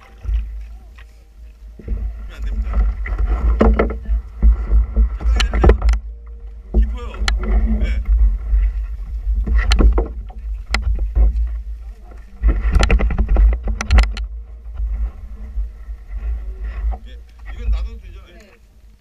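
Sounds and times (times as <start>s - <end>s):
wind buffeting microphone: 1.7s - 18.4s
sharp clicks and knocks: 1.8s - 8.2s, 9.4s - 11.6s, 12.4s - 14.9s.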